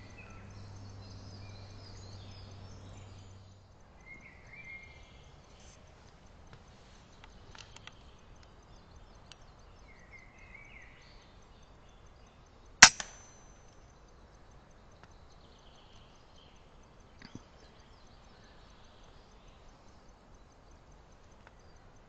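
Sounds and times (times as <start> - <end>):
air rifle shot: 12.8 - 13.4.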